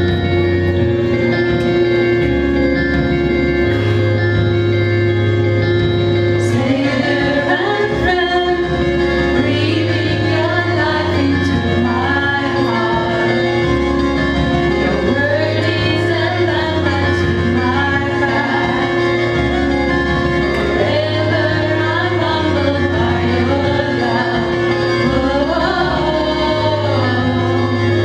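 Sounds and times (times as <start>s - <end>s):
sustained keyboard chords: 0.0s - 28.0s
women singing worship song: 6.4s - 8.8s, 9.4s - 13.4s, 14.9s - 18.9s, 20.8s - 28.0s.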